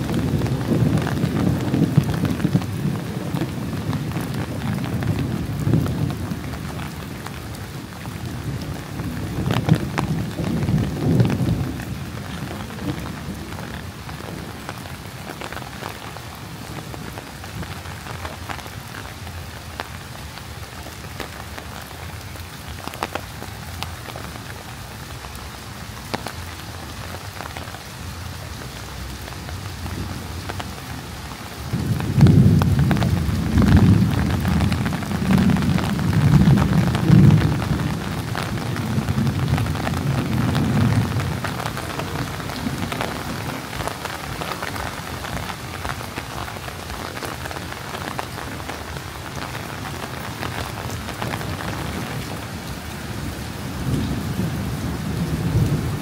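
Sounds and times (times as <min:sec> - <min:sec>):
thunder rumbling: 0:00.0 - 0:16.0, 0:29.2 - 0:52.5, 0:53.1 - 0:56.0
heavy rain on hard surfaces: 0:00.0 - 0:56.0
raindrop hits close by: 0:00.0 - 0:56.0.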